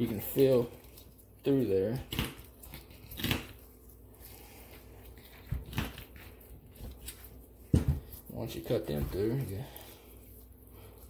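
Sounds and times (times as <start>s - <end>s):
snips crunching through fish spines: 2.0s - 3.7s.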